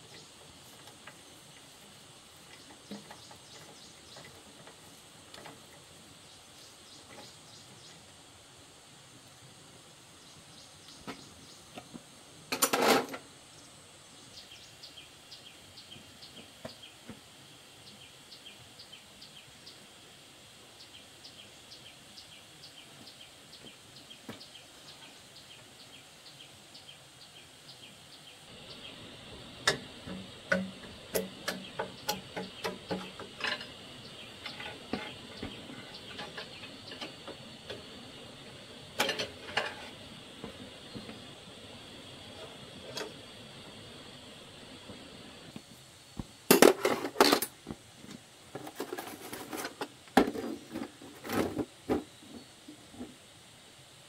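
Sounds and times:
steady high chirping: 0:20.9 - 0:45.5.

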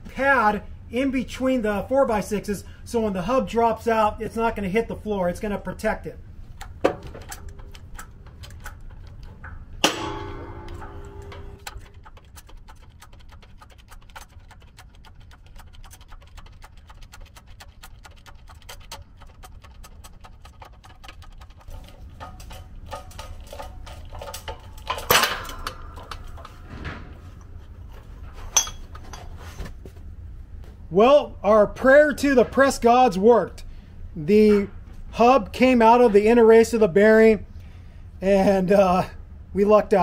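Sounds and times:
loud metallic clank: 0:09.8 - 0:11.7, 0:25.0 - 0:27.1
metallic bang with ringing: 0:09.8 - 0:11.7
fast even ticking: 0:11.7 - 0:22.2.

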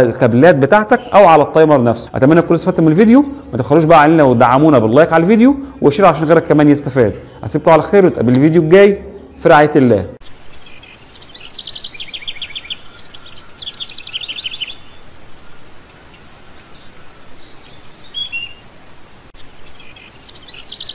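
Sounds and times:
small birds chirping trills: 0:00.0 - 0:20.9.

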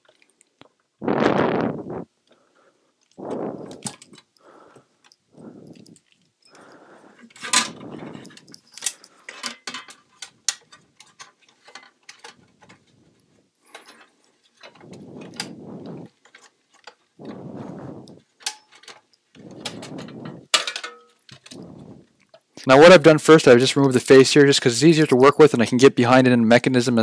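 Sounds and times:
case rubbing and sliding: 0:13.7 - 0:18.4, 0:19.4 - 0:20.5.

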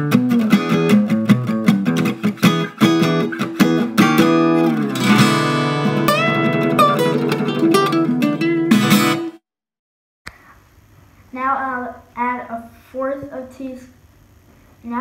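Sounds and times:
acoustic guitar music: 0:00.0 - 0:09.4.

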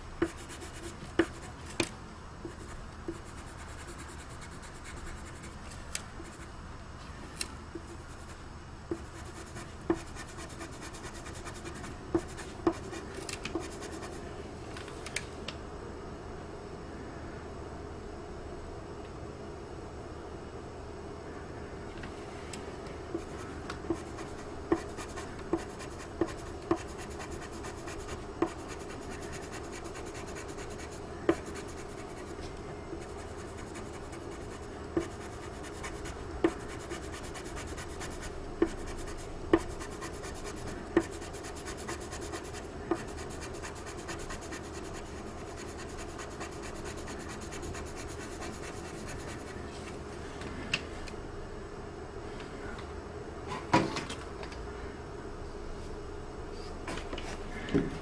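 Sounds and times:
pencil rubbing on paper: 0:00.2 - 0:01.5, 0:02.5 - 0:05.6, 0:07.9 - 0:14.2, 0:23.2 - 0:32.4, 0:33.0 - 0:49.6.

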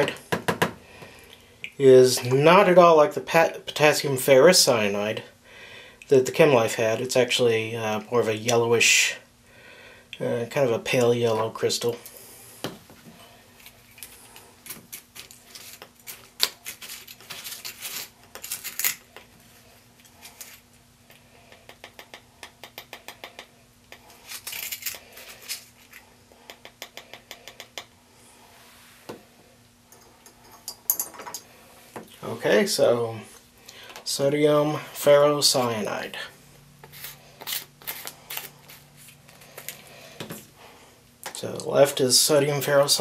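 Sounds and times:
glassware clinking and scraping: 0:29.9 - 0:31.5.

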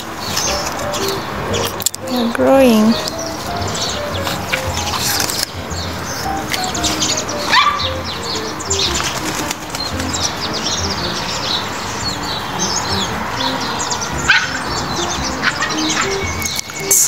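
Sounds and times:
birds chirping: 0:00.0 - 0:17.0
background music with bass line: 0:09.9 - 0:11.6, 0:12.6 - 0:16.6.

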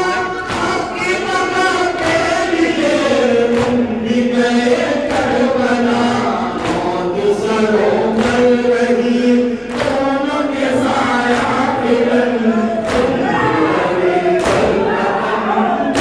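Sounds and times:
men chanting over microphones: 0:00.0 - 0:16.0
sharp slaps of chest beating: 0:14.4 - 0:14.8.

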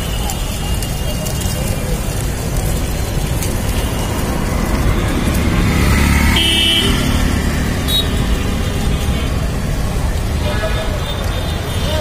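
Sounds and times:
wind rumbling over microphone: 0:00.0 - 0:10.9
street traffic: 0:00.0 - 0:12.0
vehicle horn toot: 0:06.1 - 0:07.3, 0:07.9 - 0:09.4.

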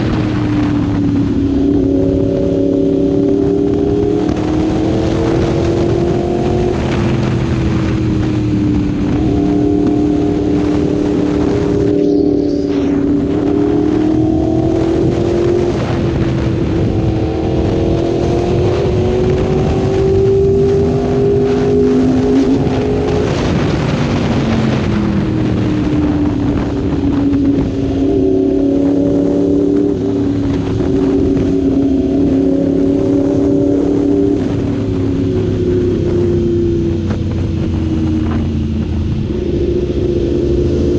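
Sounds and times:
motorcycle engine accelerating: 0:00.0 - 0:40.9.

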